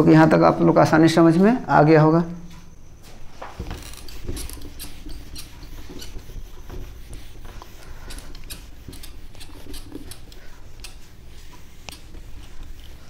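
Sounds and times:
eraser rubbing on whiteboard: 3.5s - 13.0s.

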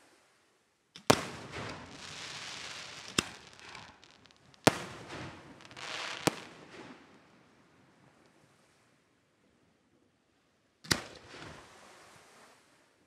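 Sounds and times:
firework shells bursting: 1.0s - 7.2s
hissing spray of sparks: 1.1s - 6.5s.

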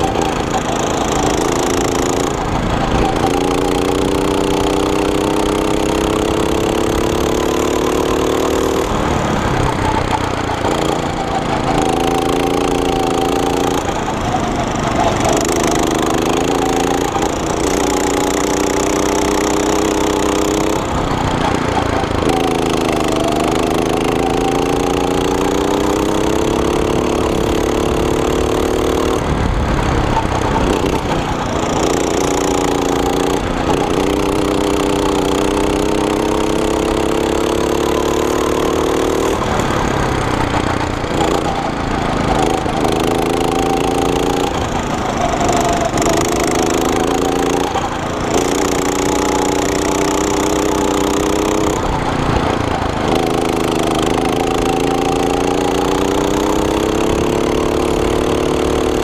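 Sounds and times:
go-kart engine revving: 0.0s - 59.0s
wind noise: 29.1s - 32.0s.

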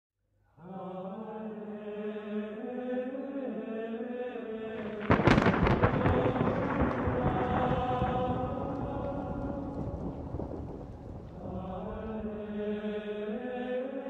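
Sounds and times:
low chanting voices: 0.6s - 14.0s
thunder crack and rumble: 4.8s - 12.6s.

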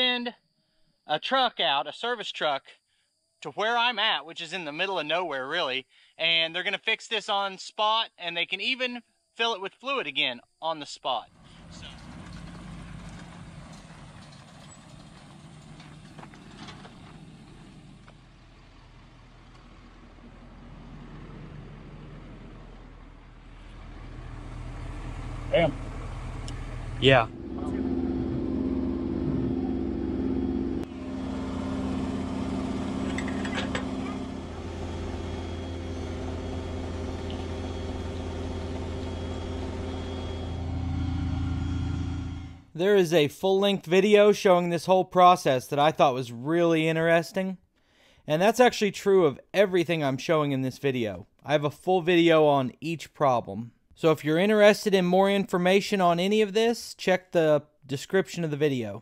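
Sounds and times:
truck engine running: 11.3s - 42.7s.

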